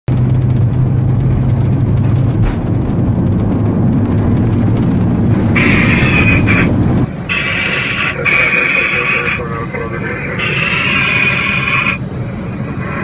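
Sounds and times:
airliner engines and wheels rumbling: 0.1s - 13.0s
low hum: 0.1s - 13.0s
higher harsh sound: 2.4s - 12.1s.

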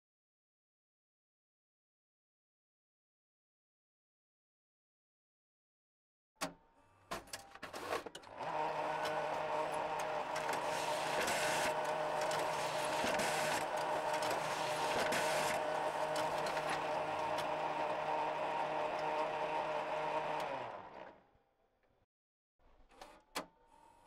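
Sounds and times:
photocopier clicks and clunks: 7.1s - 20.6s
photocopier motor whirring: 7.6s - 21.2s
scan carriage hissing: 7.7s - 21.0s.

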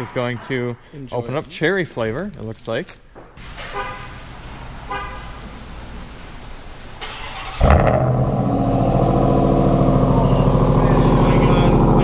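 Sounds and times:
engine starting and idling: 6.9s - 12.0s
engine starter turning: 7.0s - 12.0s.

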